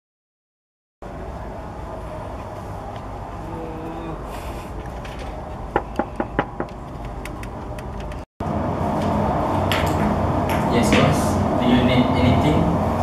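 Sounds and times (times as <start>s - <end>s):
low room hum: 1.0s - 13.0s
knuckles knocking on door: 5.7s - 6.7s.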